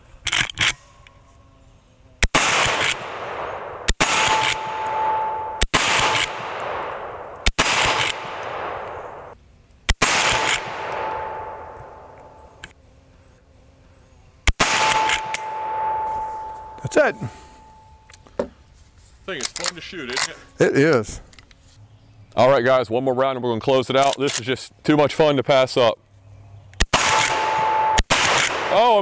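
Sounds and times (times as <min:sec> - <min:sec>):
rifle shots echoing: 0:02.2 - 0:12.6, 0:14.5 - 0:17.9, 0:26.8 - 0:29.0
steel targets ringing: 0:04.0 - 0:05.7, 0:14.6 - 0:18.1, 0:27.4 - 0:28.1.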